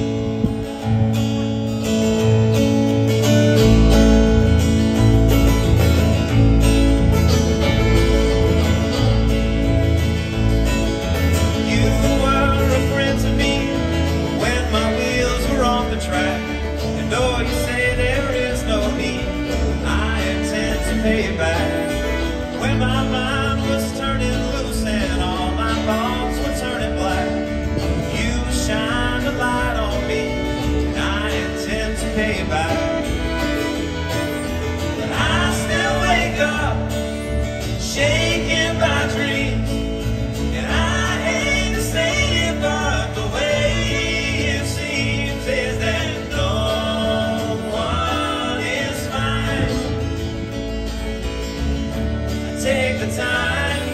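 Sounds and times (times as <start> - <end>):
acoustic guitar: 0.0 - 53.9
fiddle: 0.0 - 53.9
upright bass: 0.0 - 53.9
man singing: 11.1 - 50.5, 52.2 - 53.9.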